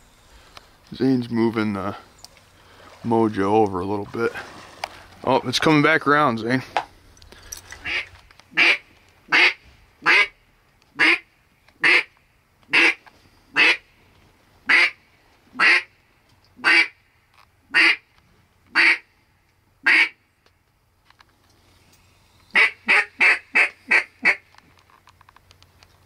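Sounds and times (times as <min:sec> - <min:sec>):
loud duck quacks: 0:07.8 - 0:10.3, 0:11.0 - 0:11.2, 0:11.8 - 0:12.1, 0:12.7 - 0:13.0, 0:13.6 - 0:13.8, 0:14.7 - 0:15.0, 0:15.6 - 0:15.9, 0:16.6 - 0:17.0, 0:17.7 - 0:18.0, 0:18.8 - 0:19.0, 0:19.8 - 0:20.2, 0:22.5 - 0:24.4.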